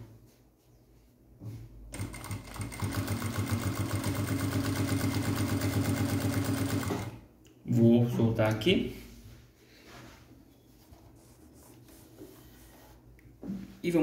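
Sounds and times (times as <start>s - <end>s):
sewing machine stitching: 1.9s - 7.2s.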